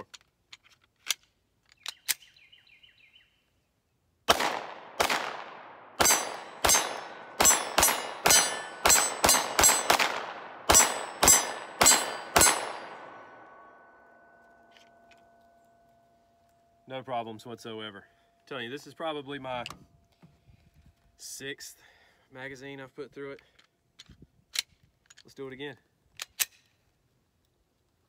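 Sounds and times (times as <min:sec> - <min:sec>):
pistol handling clicks: 0:00.1 - 0:02.4, 0:26.1 - 0:26.7
pistol shots with echo: 0:04.3 - 0:14.0.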